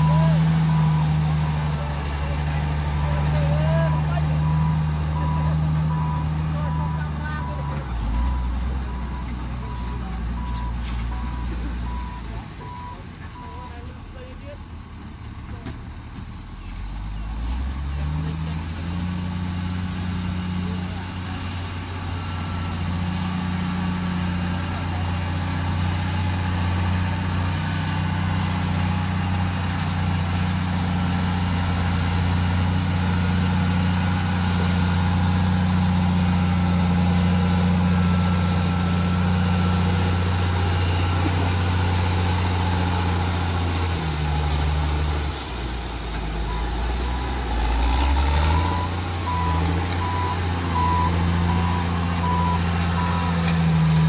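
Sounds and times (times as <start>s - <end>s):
reversing alarm beeping: 0.0s - 1.8s, 3.3s - 13.8s, 48.5s - 53.5s
diesel engine under load: 0.0s - 54.0s.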